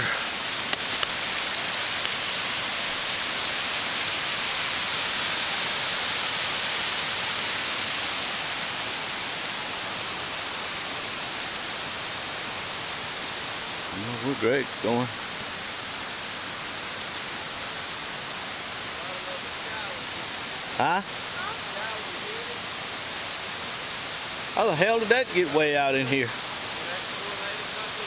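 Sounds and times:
creek rushing over rocks: 0.0 - 28.0.

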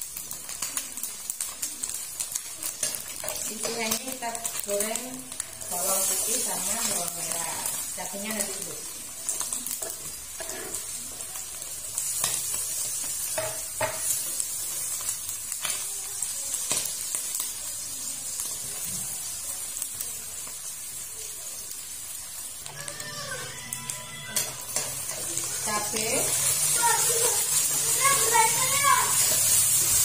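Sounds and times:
food sizzling in hot oil: 0.0 - 30.0.

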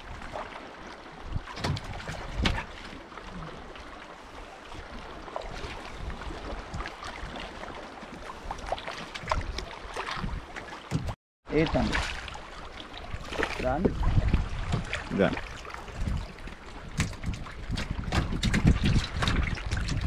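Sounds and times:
water splashing and lapping: 0.0 - 20.0
wind on microphone: 8.4 - 11.2, 13.0 - 20.0.

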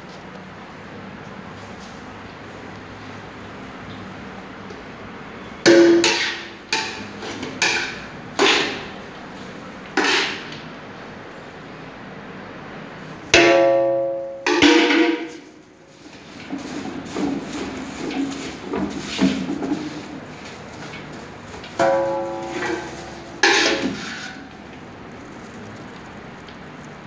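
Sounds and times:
metal pots and buckets clanking: 13.4 - 24.7.

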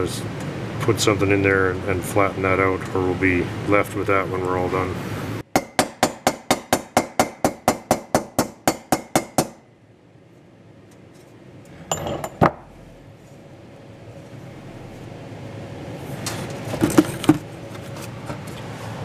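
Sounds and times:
hammer tapping on metal: 5.5 - 9.6.

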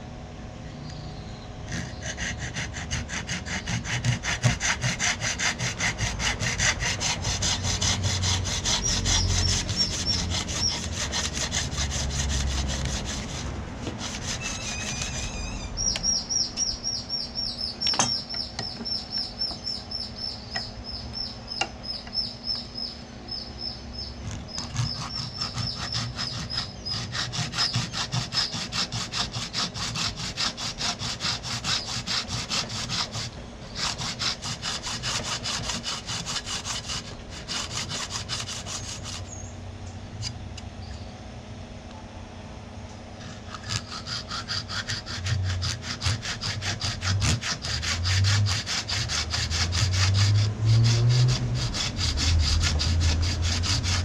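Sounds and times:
hand saw cutting wood: 1.7 - 16.4, 24.3 - 39.4, 43.2 - 54.0.

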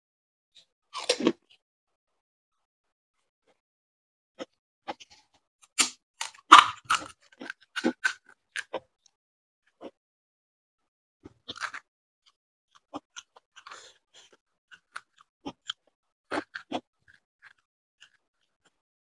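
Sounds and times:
crisp shells crunching when chewed: 5.8 - 8.8, 11.4 - 11.9, 12.8 - 18.8.

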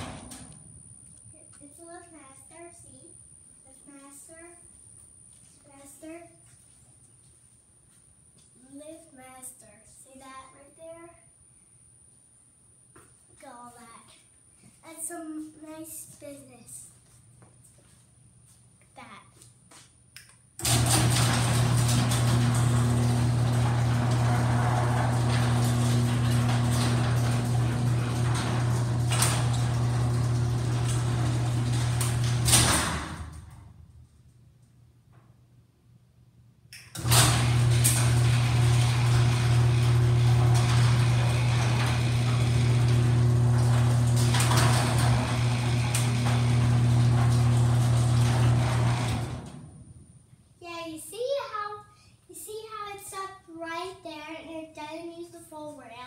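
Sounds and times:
garage door rattling down tracks: 0.0 - 0.6, 20.6 - 33.9, 37.0 - 50.0
garage door motor hum: 0.0 - 1.8, 20.6 - 34.4, 36.8 - 50.3.

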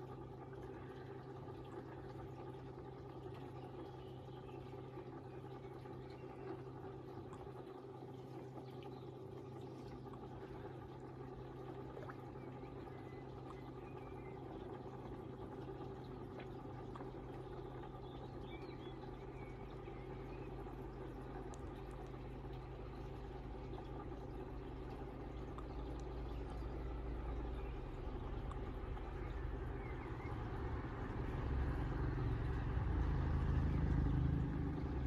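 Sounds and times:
pond pump humming: 0.0 - 35.0
water trickling: 0.0 - 35.0
faint bird chirps: 12.1 - 15.0, 17.4 - 20.9, 25.4 - 30.7.

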